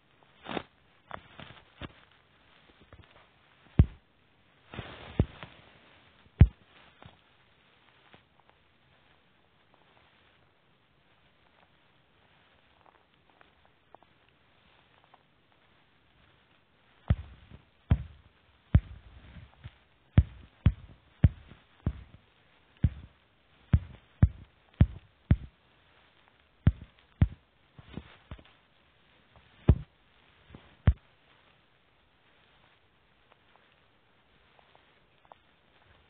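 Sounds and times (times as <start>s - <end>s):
fingertip taps on touchscreen: 3.8s - 4.0s, 17.1s - 18.2s, 18.8s - 19.0s, 20.2s - 22.2s, 22.8s - 23.1s, 23.8s - 25.5s, 26.7s - 27.4s.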